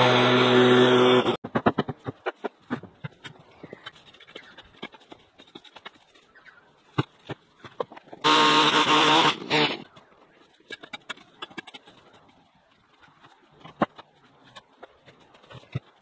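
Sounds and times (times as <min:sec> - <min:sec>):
leaf blower running: 0:00.0 - 0:01.4, 0:08.2 - 0:09.8
brush and debris rustling: 0:02.2 - 0:08.3, 0:09.4 - 0:16.0.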